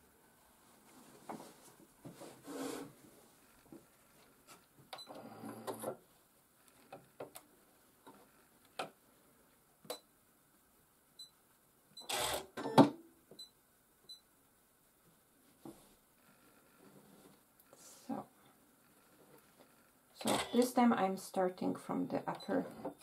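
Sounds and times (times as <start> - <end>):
fabric rustling: 0.3 - 4.8.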